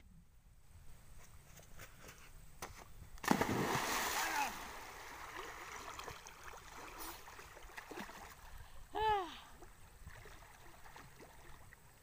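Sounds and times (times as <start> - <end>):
small splashes: 3.2 - 8.6
river water sloshing around swimmer: 3.2 - 8.8, 9.5 - 12.0.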